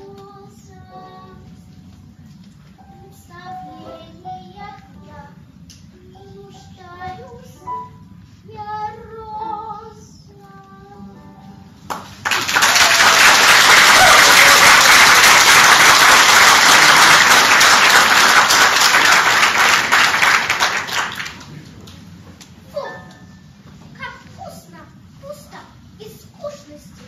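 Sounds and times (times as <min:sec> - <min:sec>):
child singing: 0:00.0 - 0:01.8, 0:02.8 - 0:07.9, 0:08.5 - 0:11.4
audience applause: 0:11.9 - 0:21.6.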